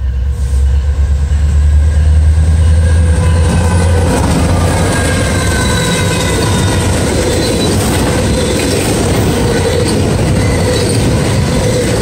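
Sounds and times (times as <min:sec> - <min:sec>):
faint high squeal: 0:00.0 - 0:08.8, 0:09.5 - 0:12.0
diesel locomotive engine rumble: 0:00.0 - 0:12.0
steel wheels on rail: 0:00.0 - 0:12.0.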